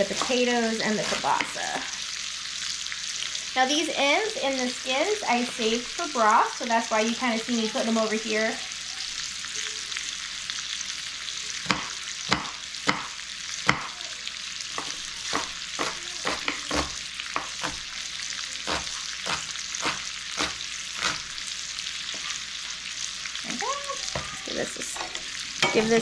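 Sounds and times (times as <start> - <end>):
sausage sizzling in a skillet: 0.0 - 26.0
knife chopping on cutting board: 11.7 - 13.1, 14.8 - 17.9, 18.7 - 21.3.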